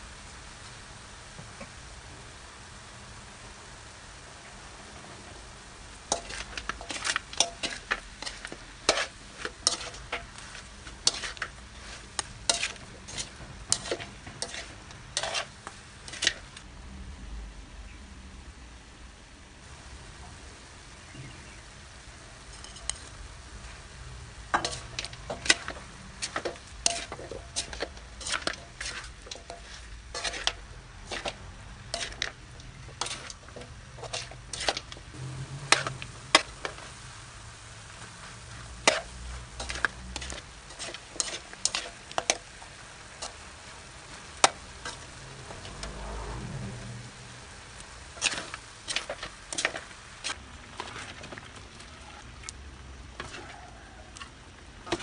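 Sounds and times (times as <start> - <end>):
meat sizzling: 0.0 - 16.6, 19.6 - 51.7, 52.5 - 55.0
metal spatula scraping a pan: 6.1 - 16.6, 22.4 - 23.2, 24.4 - 36.9, 38.1 - 47.0, 48.0 - 51.1, 53.2 - 55.0.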